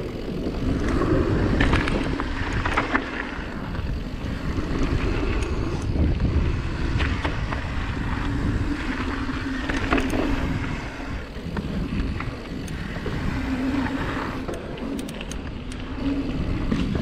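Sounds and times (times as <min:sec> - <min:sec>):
bike rattling and knocking: 0:00.0 - 0:10.6
wind rushing over microphone: 0:00.0 - 0:17.0.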